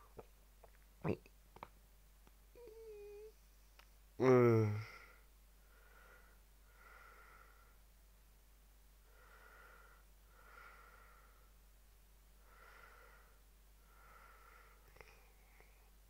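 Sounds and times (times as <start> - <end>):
faint breaths: 4.5 - 8.0, 9.0 - 16.0.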